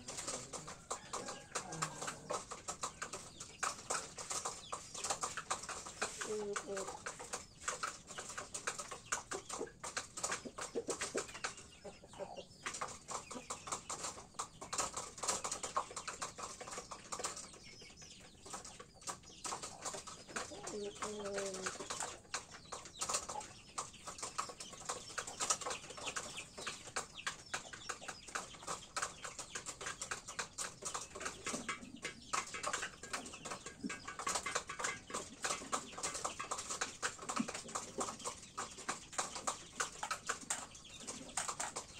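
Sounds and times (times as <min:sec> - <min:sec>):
beak pecking on metal tray: 0:00.0 - 0:17.0, 0:19.1 - 0:41.9
chicken clucking: 0:00.0 - 0:41.9.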